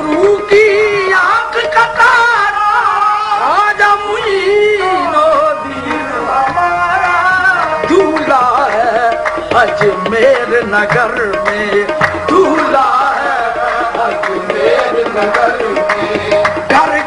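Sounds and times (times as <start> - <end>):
harmonium notes: 0.0 - 17.0
person singing: 0.0 - 17.0
tabla strokes: 0.0 - 17.0.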